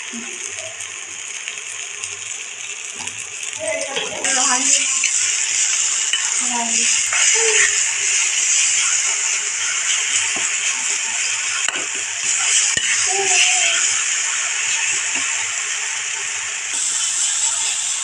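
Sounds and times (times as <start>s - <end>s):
spices sizzling in oil: 0.0s - 18.0s
metal spatula scraping pan: 4.0s - 13.6s.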